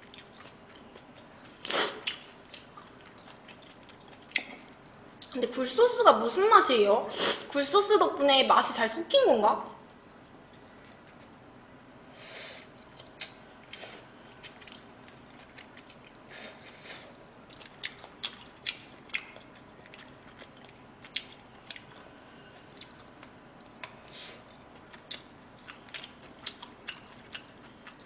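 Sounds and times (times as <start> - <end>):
person chewing food: 0.0 - 5.3, 12.6 - 28.0.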